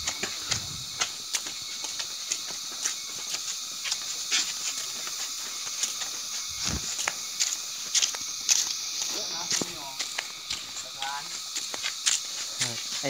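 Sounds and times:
insect chorus: 0.0s - 13.0s.

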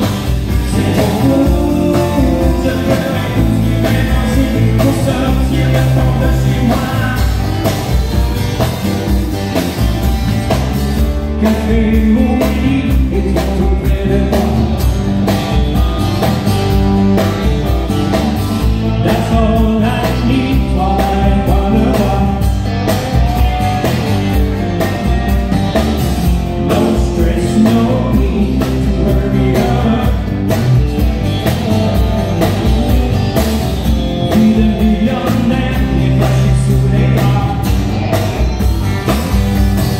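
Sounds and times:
man singing: 0.0s - 7.8s, 11.2s - 14.9s, 18.8s - 22.7s, 26.5s - 30.6s, 31.2s - 37.9s
acoustic guitar: 0.0s - 39.9s
drums: 0.0s - 39.9s
electric guitars: 0.0s - 39.9s.

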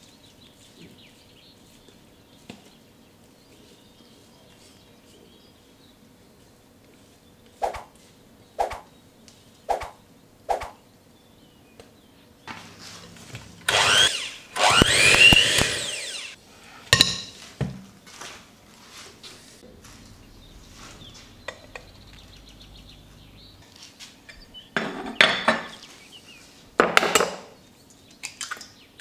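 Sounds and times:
electric hand mixer whirring: 13.6s - 16.4s.

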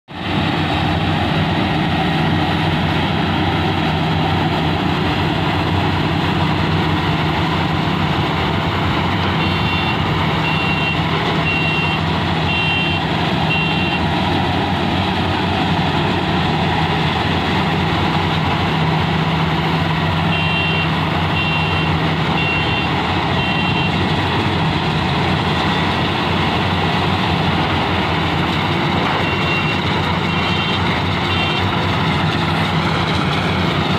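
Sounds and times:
combine harvester engines and machinery: 0.1s - 33.9s
short high beeps: 29.0s - 31.6s.

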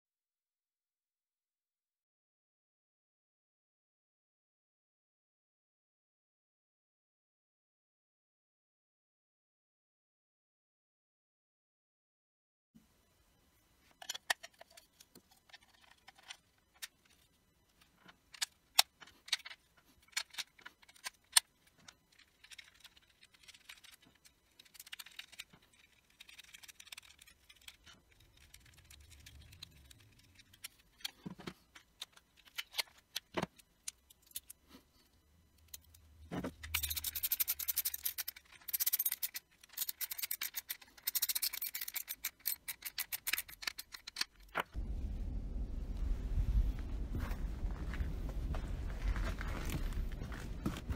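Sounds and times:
plastic parts clicking and knocking: 13.9s - 34.8s, 35.5s - 44.8s.

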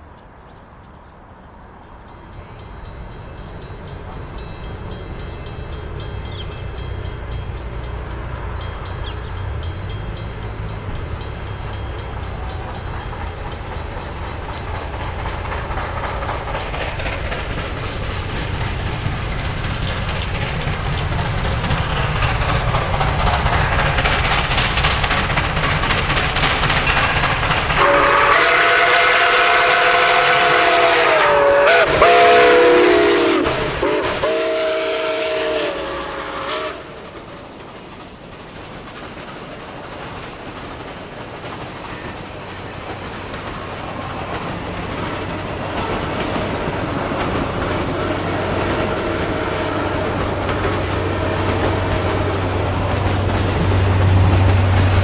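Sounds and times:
steam locomotive running: 1.7s - 55.0s
steam whistle chord: 27.8s - 37.0s.

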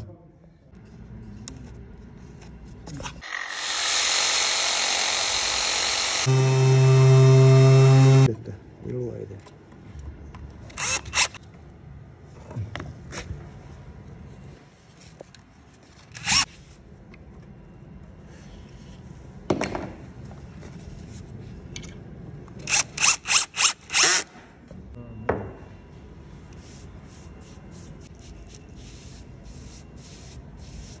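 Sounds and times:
cordless drill bursts: 3.2s - 8.3s.

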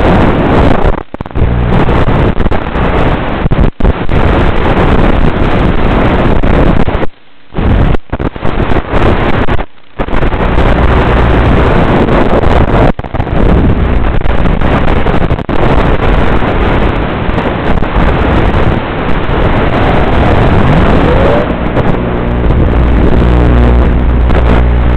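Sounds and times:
propeller noise: 0.0s - 24.9s
rushing wind: 0.0s - 24.9s
electric motor hum: 19.5s - 24.9s.

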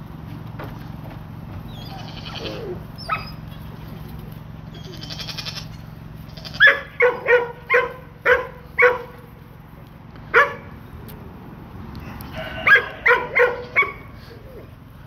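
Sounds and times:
dog barking: 6.6s - 9.2s, 10.3s - 10.8s, 12.4s - 14.2s.

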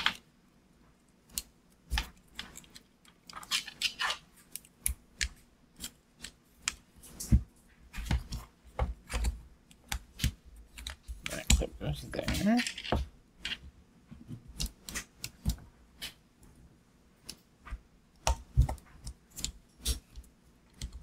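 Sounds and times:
clicks and scrapes of plastic parts: 1.3s - 16.2s.

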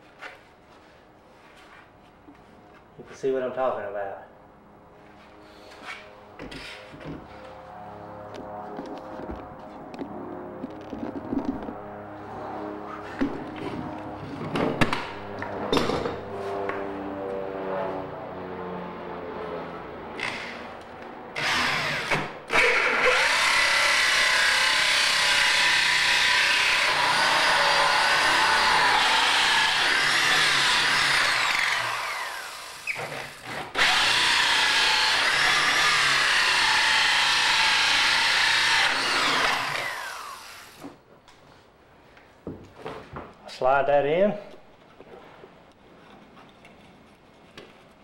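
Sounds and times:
electric drill cutting through wood: 20.2s - 20.6s, 21.4s - 40.9s.

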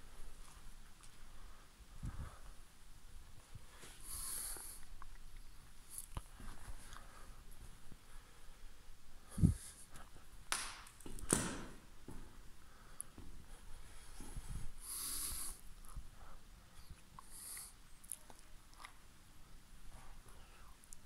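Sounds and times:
footsteps: 9.4s - 12.5s.

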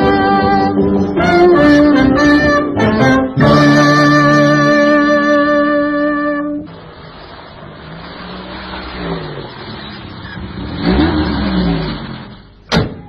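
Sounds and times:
music: 0.0s - 6.7s
motor revving: 6.7s - 12.6s.

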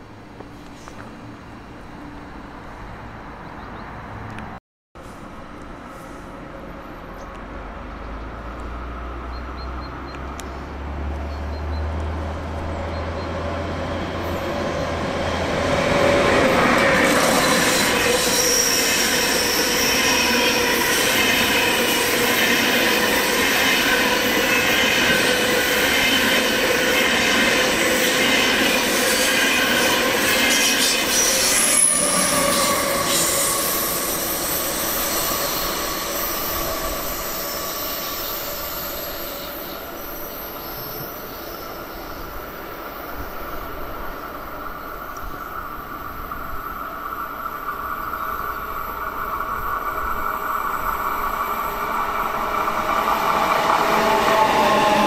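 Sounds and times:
train wheels rumbling: 10.2s - 55.0s
wheel squeal: 12.9s - 42.2s.

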